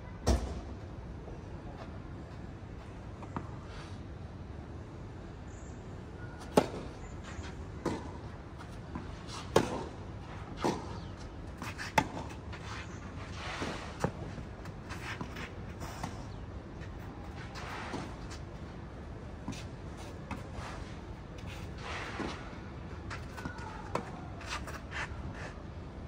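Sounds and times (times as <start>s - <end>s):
tennis ball hit by rackets: 9.4s - 10.0s.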